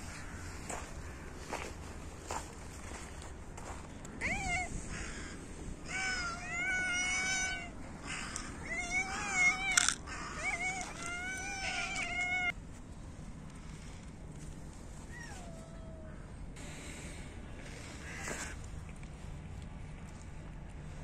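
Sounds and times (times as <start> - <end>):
cat meowing: 4.2 - 4.7, 5.9 - 7.8, 8.6 - 12.5.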